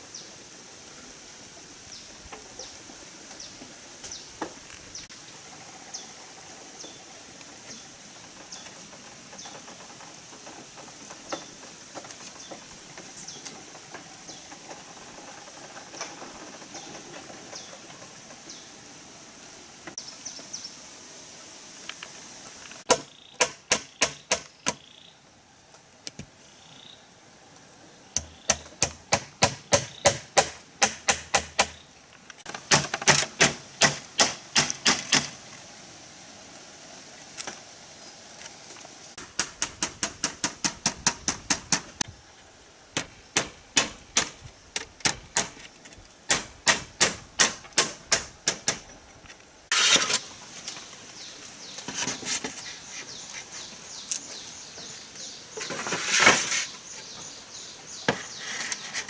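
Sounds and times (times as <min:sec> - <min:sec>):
hand tool knocking on bamboo: 0:22.9 - 0:24.8, 0:28.2 - 0:31.8
rustling scraping noise: 0:48.9 - 0:57.4, 0:58.0 - 0:59.0.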